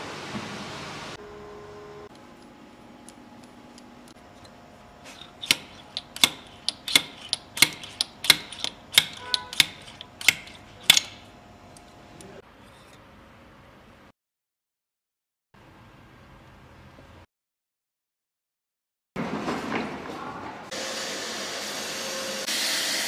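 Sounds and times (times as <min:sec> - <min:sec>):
hand tool metallic clicks: 0:05.2 - 0:11.9.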